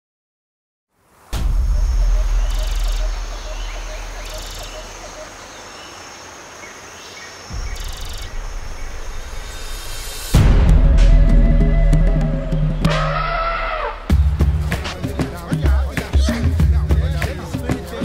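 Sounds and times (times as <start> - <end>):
low rumble: 1.4 - 5.2, 7.5 - 13.2
insect trilling: 1.4 - 14.1
small birds chirping: 1.5 - 10.4.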